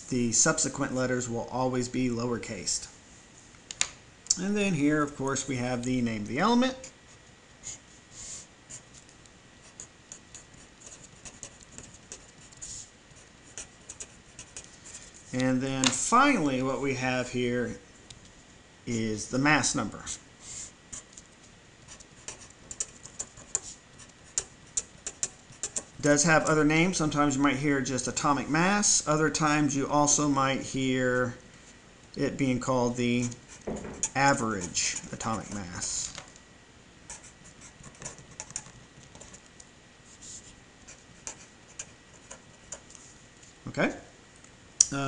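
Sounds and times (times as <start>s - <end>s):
marker writing on paper: 9.6s - 15.0s, 21.9s - 26.0s, 33.2s - 35.7s, 37.1s - 39.4s.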